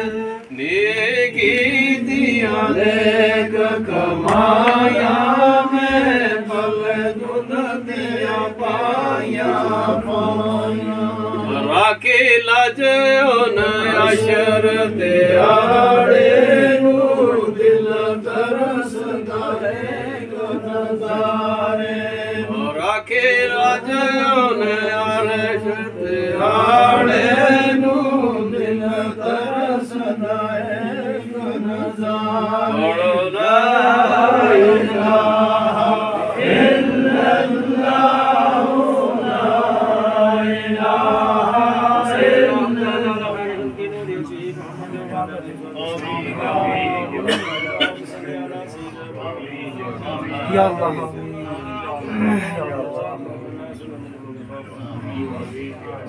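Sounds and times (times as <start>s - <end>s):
men chanting together: 0.0s - 44.0s.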